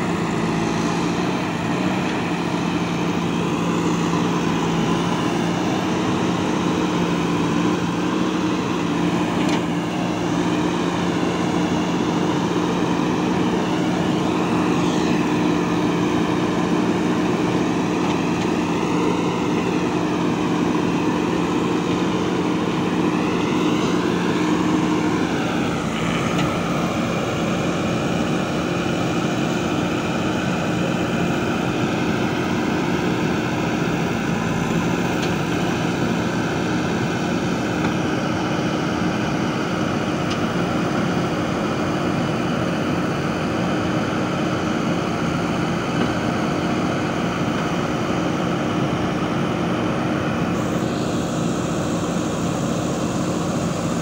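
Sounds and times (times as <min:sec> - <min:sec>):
high-pitched hydraulic whine: 0:00.0 - 0:39.3, 0:50.4 - 0:54.0
diesel engine running: 0:00.0 - 0:54.0.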